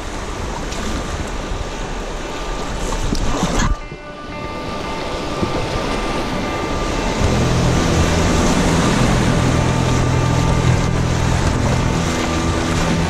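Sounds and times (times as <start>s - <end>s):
whitewater churning: 0.0s - 13.0s
background music with bass: 6.5s - 13.0s.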